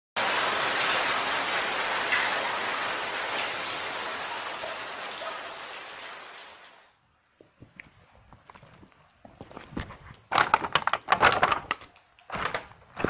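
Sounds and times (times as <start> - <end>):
steady rain: 0.2 - 7.0.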